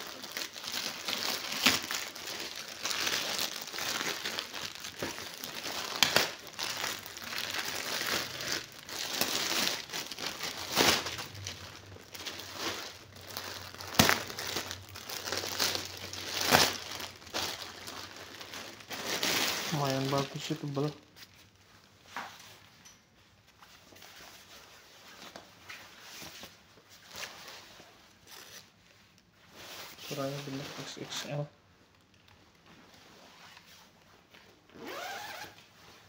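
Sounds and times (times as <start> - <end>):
sharp plastic crackle: 0.0 - 21.4
plastic bags crinkling: 0.0 - 22.6.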